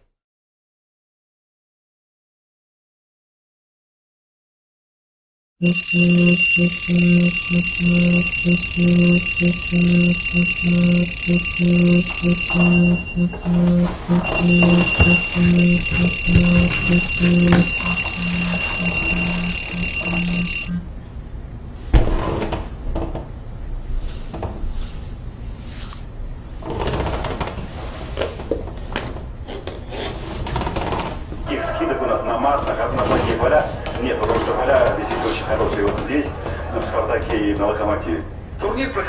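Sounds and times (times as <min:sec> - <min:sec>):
alarm ringing and beeping: 0:05.6 - 0:20.8.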